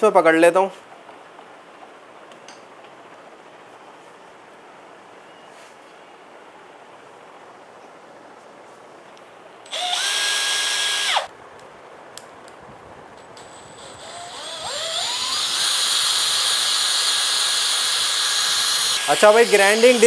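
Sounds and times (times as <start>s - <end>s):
cordless drill whining: 9.7s - 11.3s, 13.4s - 20.0s
drill click: 9.7s - 11.3s, 13.4s - 20.0s.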